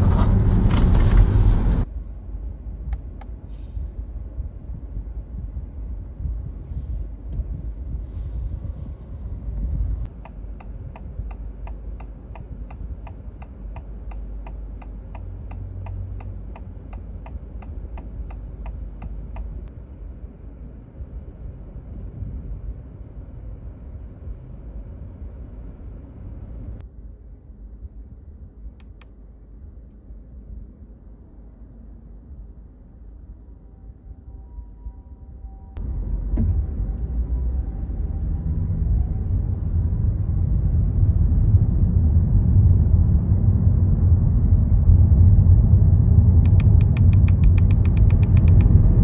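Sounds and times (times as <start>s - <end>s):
low cabin rumble: 0.0s - 49.0s
turn signal ticking: 10.0s - 19.7s, 46.4s - 49.0s.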